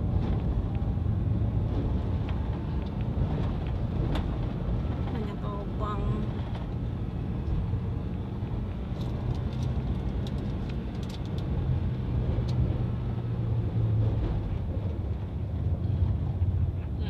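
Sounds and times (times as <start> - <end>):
car engine hum with road noise: 0.0 - 17.0.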